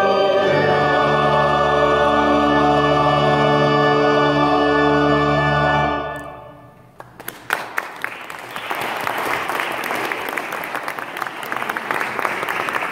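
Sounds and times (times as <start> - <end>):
audience applauding: 7.0 - 12.9.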